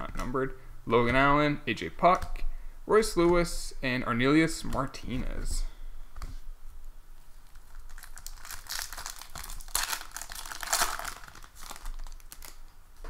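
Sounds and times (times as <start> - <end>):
foil wrapper tearing and crinkling: 7.4 - 12.7.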